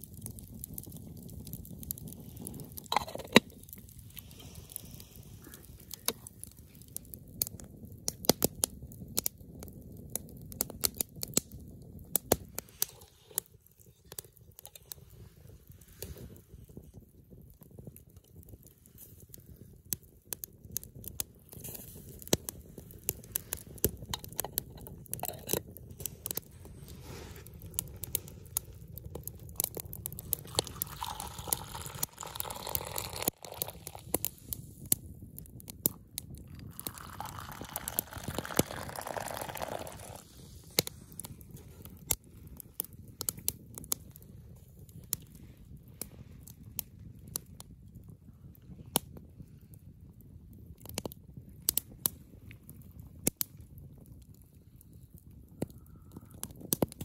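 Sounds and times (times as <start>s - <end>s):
campfire crackling and popping: 0.0s - 57.0s
tea pouring into a plastic mug: 0.1s - 7.1s, 26.2s - 34.6s, 36.4s - 42.0s.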